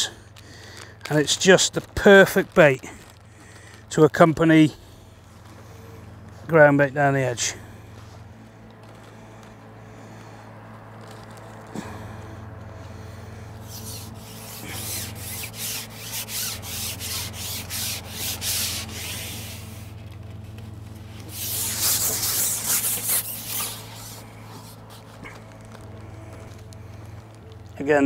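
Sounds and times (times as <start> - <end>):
fishing pole sliding and rubbing: 13.3 - 26.6.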